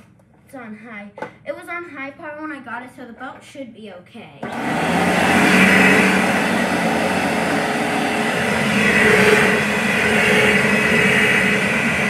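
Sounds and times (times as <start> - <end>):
upright vacuum cleaner running: 4.4 - 12.0.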